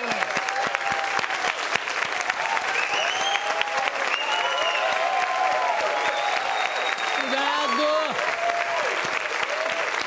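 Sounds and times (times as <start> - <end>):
audience applauding: 0.0 - 10.0
voices cheering: 2.3 - 10.0.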